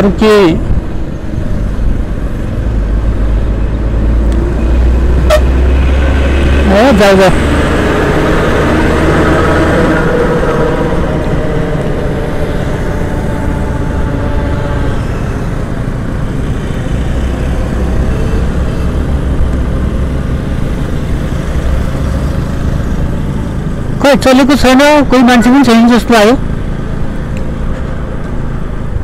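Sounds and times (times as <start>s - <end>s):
road traffic passing: 0.0s - 29.0s
truck passing: 0.0s - 29.0s
wind rush on microphone: 0.4s - 6.7s.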